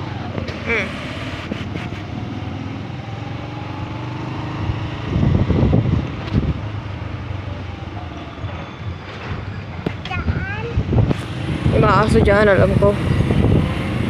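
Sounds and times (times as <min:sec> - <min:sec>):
wind noise on microphone: 0:01.3 - 0:02.3, 0:04.6 - 0:06.9, 0:09.3 - 0:14.0
small motorbike engine running: 0:11.1 - 0:14.0.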